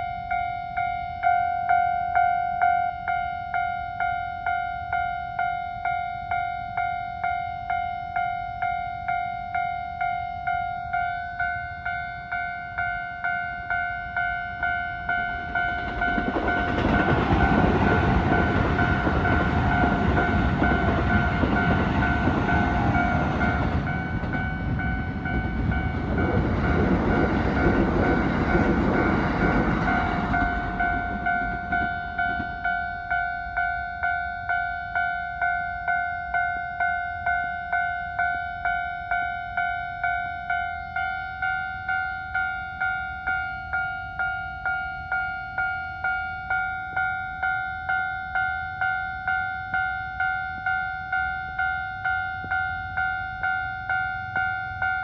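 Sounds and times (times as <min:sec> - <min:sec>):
level crossing warning bell: 0:00.0 - 0:55.0
train wheels rumbling on rail: 0:14.2 - 0:33.7.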